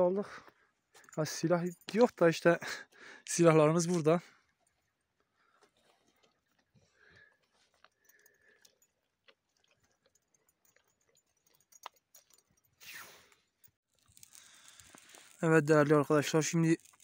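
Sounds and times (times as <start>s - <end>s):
dog chewing on stony ground: 7.5s - 12.6s.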